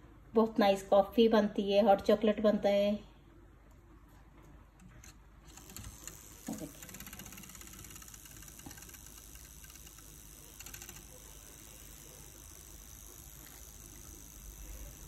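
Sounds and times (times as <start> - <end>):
milk frother whirring: 5.5 - 15.0.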